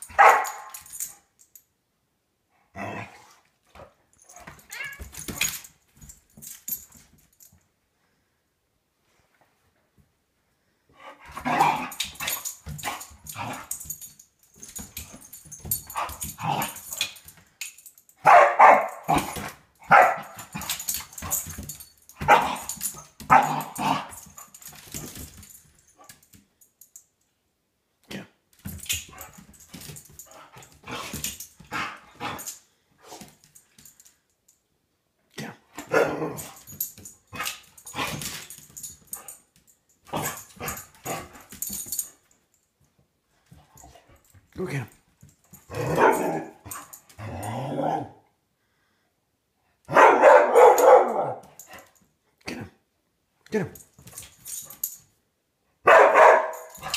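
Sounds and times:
dog barking: 0.1s - 0.7s, 18.2s - 19.2s, 19.9s - 20.4s, 22.2s - 22.6s, 45.8s - 46.5s, 49.9s - 51.4s, 55.8s - 56.7s.

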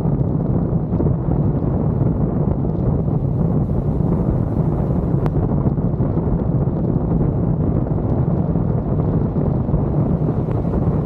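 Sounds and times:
wind rushing over microphone: 0.0s - 11.0s
road noise: 3.0s - 5.4s, 9.8s - 11.0s.

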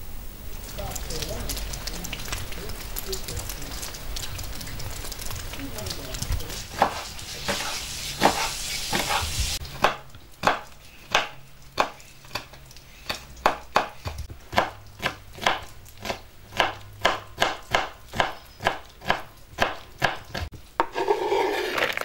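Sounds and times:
steady hiss: 0.0s - 17.5s
knife chopping on wooden board: 6.7s - 12.5s, 13.1s - 21.4s.

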